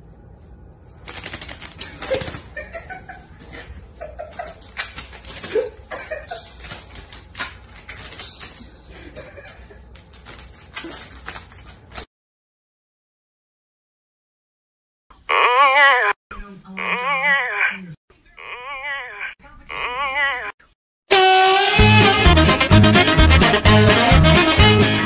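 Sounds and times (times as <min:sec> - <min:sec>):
cat paws clicking on tile: 0:01.0 - 0:02.5, 0:04.4 - 0:05.7, 0:06.3 - 0:12.1
soft laughter: 0:01.8 - 0:06.9, 0:08.5 - 0:09.9.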